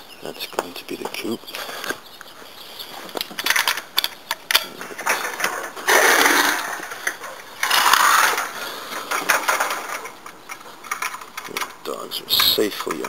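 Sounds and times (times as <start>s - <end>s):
metallic clicks and rattles of fence: 3.1s - 13.0s
scraping rustling on fence: 4.7s - 13.0s.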